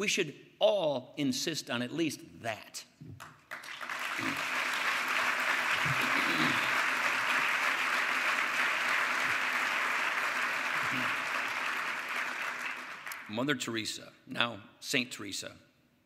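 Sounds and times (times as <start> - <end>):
audience applauding: 3.2 - 13.3.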